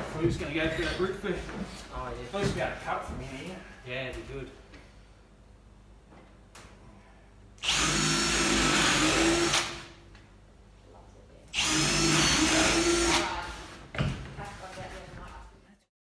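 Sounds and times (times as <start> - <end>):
cordless drill driving into particleboard: 7.6 - 9.9.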